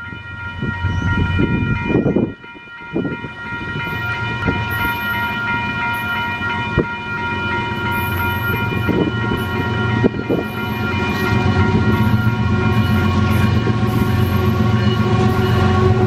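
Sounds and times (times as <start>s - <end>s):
train air horn blast: 11.2s - 16.0s.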